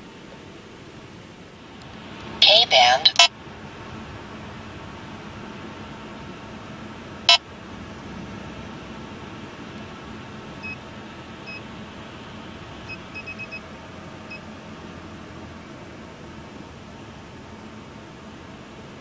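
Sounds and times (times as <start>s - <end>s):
road and cabin noise: 0.0s - 19.0s.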